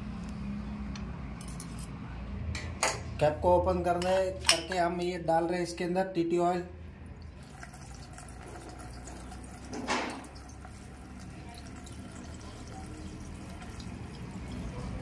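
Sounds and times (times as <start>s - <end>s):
oil trickling through funnel: 7.1s - 15.0s.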